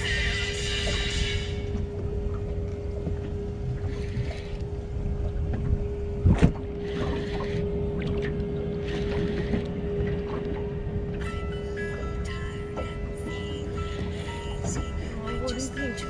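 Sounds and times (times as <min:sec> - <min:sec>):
steady hum: 0:00.0 - 0:16.0
water against boat hull: 0:00.0 - 0:16.0
wind on microphone: 0:03.6 - 0:08.2.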